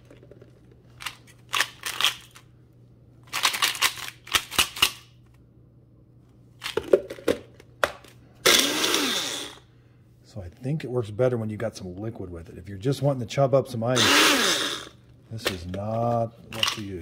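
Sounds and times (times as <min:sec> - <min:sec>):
blender motor grinding ice: 0:08.5 - 0:09.6, 0:14.0 - 0:15.0.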